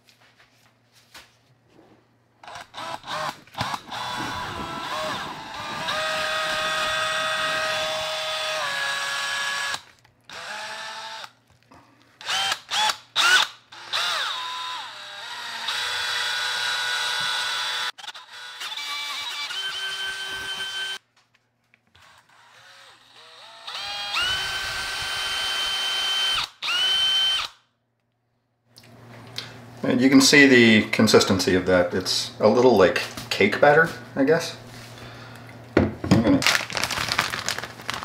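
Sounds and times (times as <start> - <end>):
power drill mixing concrete: 2.4 - 11.3, 12.2 - 21.0, 22.0 - 27.6.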